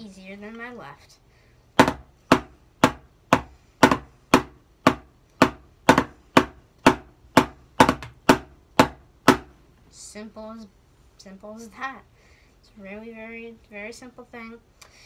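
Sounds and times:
drumsticks on practice pad: 1.8 - 9.6.

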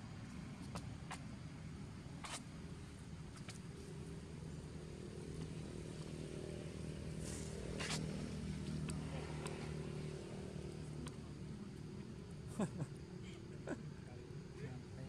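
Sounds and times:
engine running with low hum: 0.0 - 15.0.

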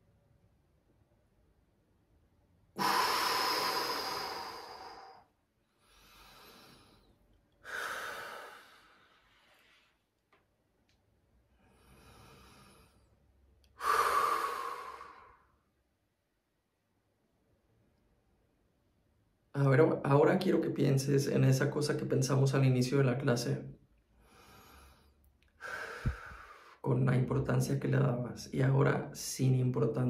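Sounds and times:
person breathing forcefully: 2.8 - 9.5, 13.8 - 15.6, 24.1 - 26.8.

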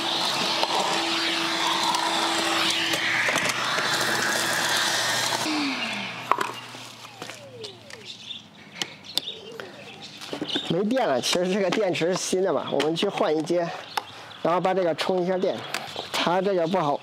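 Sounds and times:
vacuum cleaner whine: 0.0 - 8.4.

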